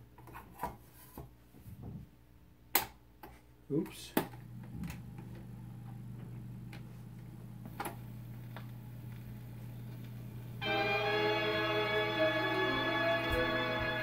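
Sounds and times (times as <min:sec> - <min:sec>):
amplifier hum: 0:04.3 - 0:14.0
record ticks and pops: 0:06.2 - 0:10.6.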